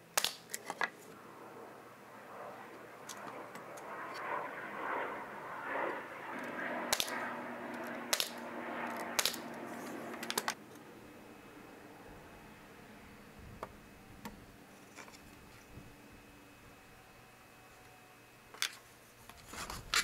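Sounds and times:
pneumatic nailer shots: 8.1 - 8.4, 9.2 - 9.4.

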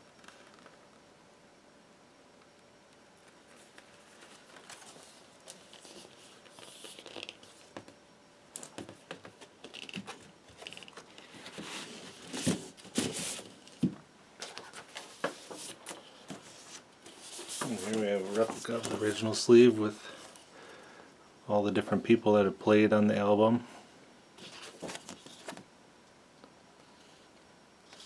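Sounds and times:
cardboard record jacket rustling: 14.5 - 19.4.

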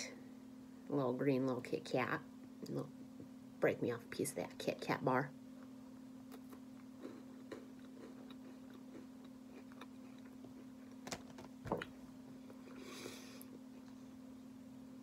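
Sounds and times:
steady low hum: 0.0 - 15.0
crisp chewing crunches: 6.3 - 11.2.

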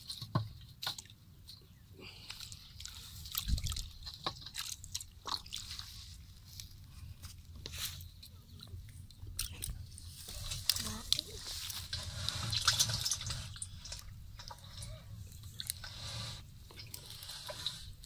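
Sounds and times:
wire netting crackling and clicking: 8.6 - 17.9.

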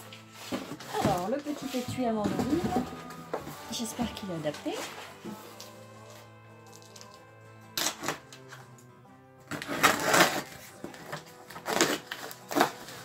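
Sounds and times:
quiet background music: 0.0 - 13.0
blade slitting packing tape: 7.8 - 8.3, 9.5 - 13.0.

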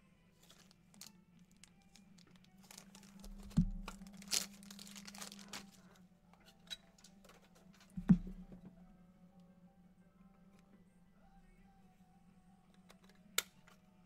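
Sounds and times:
faint background music: 0.0 - 14.0
cards rustling and crinkling: 0.4 - 6.0
low knock: 8.0 - 8.7.

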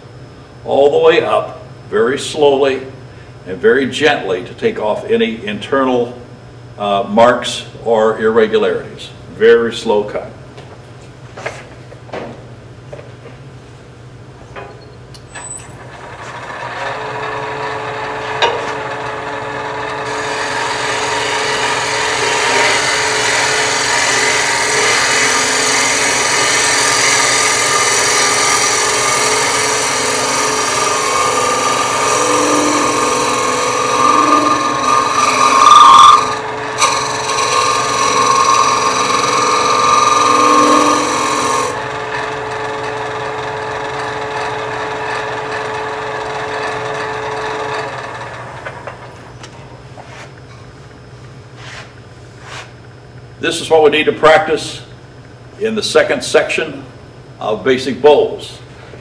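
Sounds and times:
lathe running: 15.4 - 49.3.

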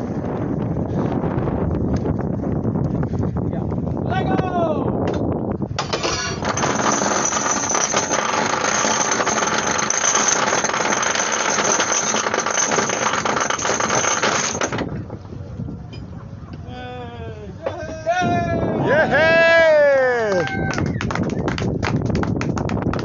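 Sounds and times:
anchor chain rattling: 5.8 - 15.1.

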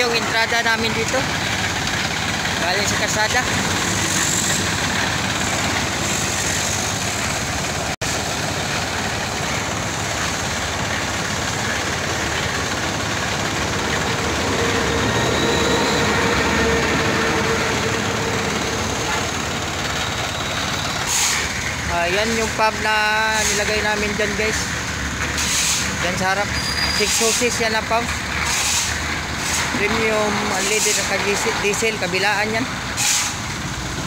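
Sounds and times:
concrete mixer engine running: 0.0 - 34.0.

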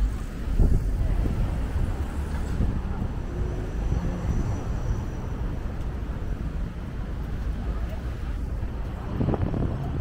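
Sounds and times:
passing traffic rumble: 0.0 - 10.0
wind on microphone: 0.4 - 3.3, 8.4 - 10.0.

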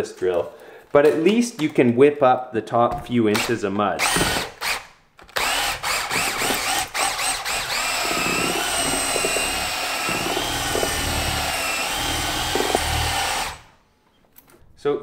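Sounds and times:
power drill mixing compound: 3.4 - 13.8.

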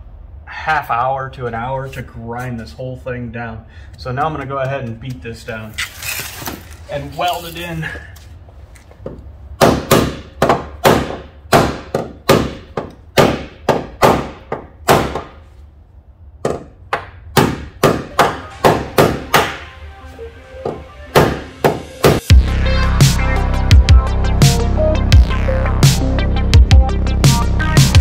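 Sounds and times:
hammer striking sheet metal: 17.4 - 19.7.

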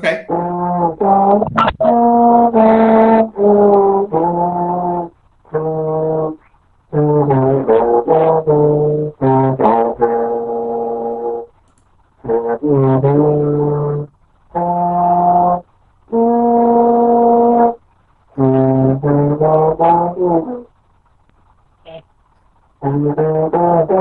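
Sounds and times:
trombone playing: 0.0 - 11.5, 12.2 - 17.8, 18.4 - 20.7, 22.8 - 24.0.

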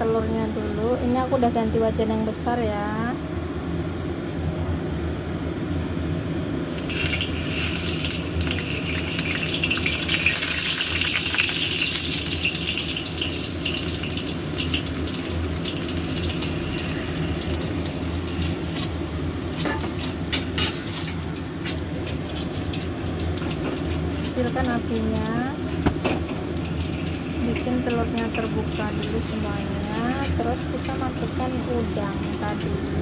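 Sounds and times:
steady low hum: 0.0 - 33.0
egg sizzling in hot oil: 6.7 - 33.0.

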